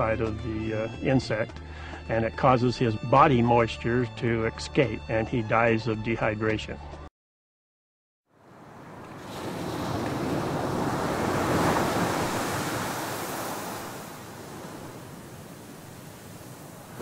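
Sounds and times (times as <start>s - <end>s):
ocean waves on beach: 8.4s - 17.0s.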